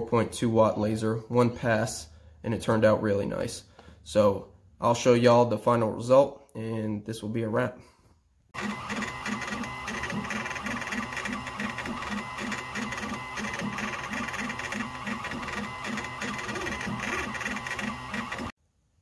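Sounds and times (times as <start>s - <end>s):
stepper motors whining: 8.6s - 18.5s.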